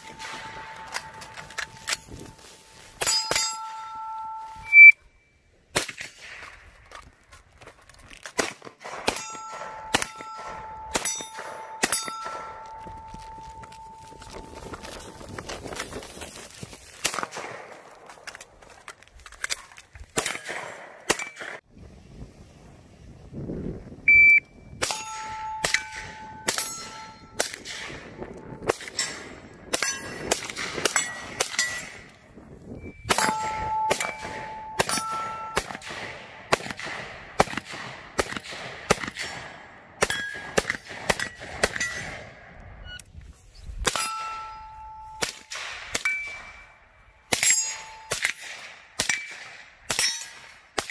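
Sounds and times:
rifle shots: 0:00.0 - 0:02.4, 0:05.7 - 0:06.6, 0:08.3 - 0:12.7, 0:17.0 - 0:18.3, 0:33.1 - 0:42.5
steel targets ringing: 0:00.0 - 0:05.4, 0:09.1 - 0:14.4, 0:24.8 - 0:27.4, 0:32.8 - 0:35.8, 0:43.9 - 0:48.2.

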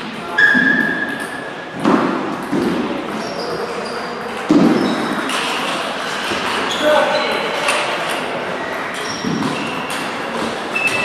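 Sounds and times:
shoe squeaks: 0:00.3 - 0:01.6, 0:03.1 - 0:05.3, 0:06.4 - 0:07.6, 0:08.6 - 0:11.0.

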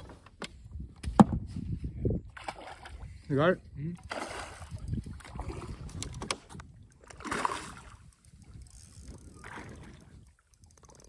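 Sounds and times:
fish splashing in water: 0:07.1 - 0:08.1.

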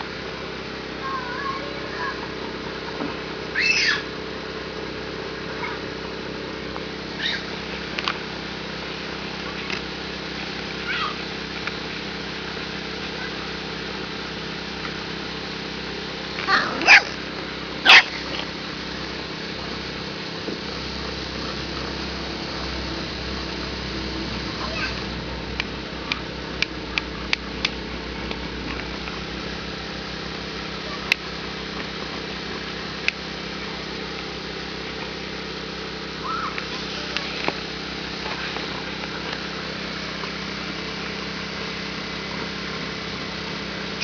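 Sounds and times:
puppy yelping: 0:03.5 - 0:04.1, 0:07.2 - 0:07.5, 0:16.4 - 0:17.2, 0:17.8 - 0:18.4.

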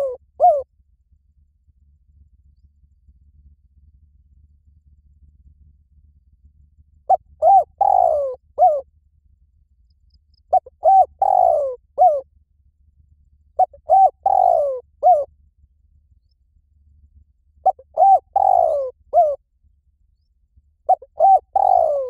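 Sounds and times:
dove cooing: 0:00.0 - 0:00.7, 0:07.1 - 0:08.8, 0:10.5 - 0:12.2, 0:13.6 - 0:15.3, 0:17.6 - 0:19.4, 0:20.9 - 0:22.0.

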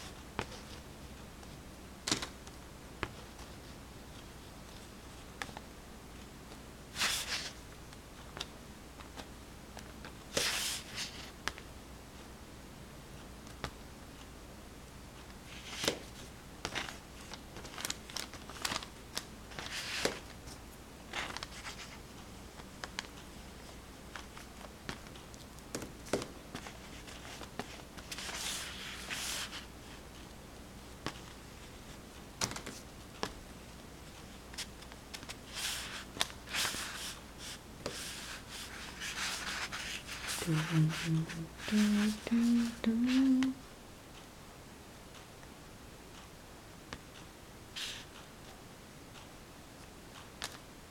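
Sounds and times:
paper rustling: 0:07.0 - 0:07.6, 0:15.5 - 0:22.0, 0:26.0 - 0:30.3, 0:34.1 - 0:43.3
oil pastel scratching on paper: 0:26.7 - 0:29.6, 0:35.5 - 0:43.2.

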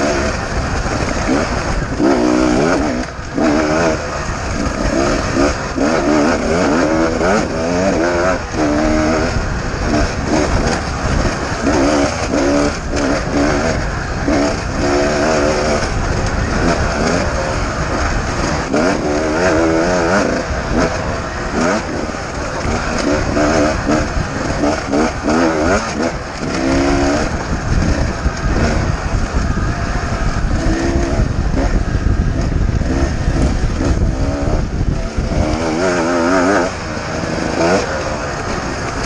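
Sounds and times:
two-stroke motorcycle engine revving: 0:00.0 - 0:39.0.

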